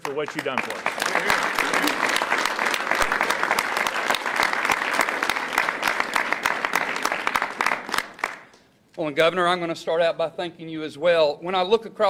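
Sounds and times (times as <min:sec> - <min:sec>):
crowd applauding: 0:00.0 - 0:08.6.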